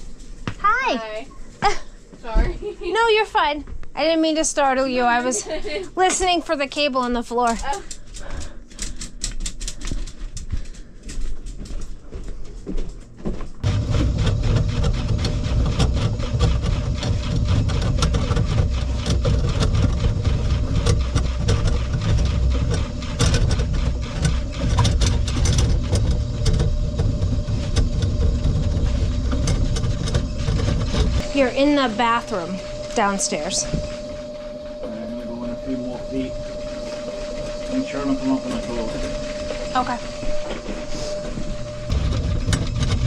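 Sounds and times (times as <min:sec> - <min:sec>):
drain cable clicking and rattling: 0:13.6 - 0:31.3, 0:41.7 - 0:43.0
drain snake motor running: 0:13.6 - 0:43.0.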